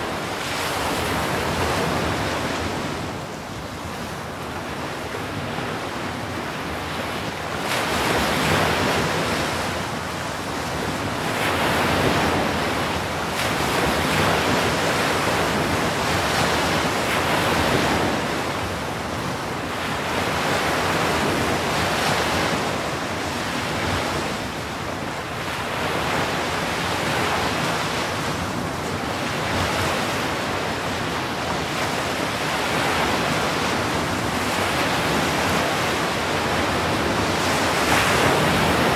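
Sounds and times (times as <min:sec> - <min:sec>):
ocean surf breaking: 0:10.4 - 0:38.9.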